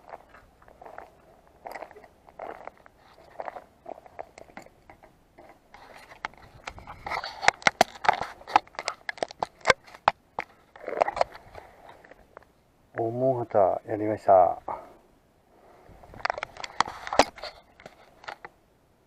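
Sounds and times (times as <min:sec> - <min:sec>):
handling scrapes and rustles: 0:00.0 - 0:12.5, 0:16.0 - 0:18.6.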